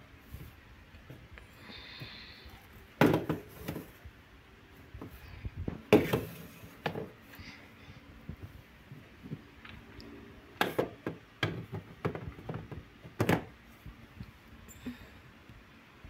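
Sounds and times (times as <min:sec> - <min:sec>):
plastic canisters knocking on shelf: 0:03.0 - 0:04.0, 0:05.0 - 0:07.2, 0:10.6 - 0:13.6.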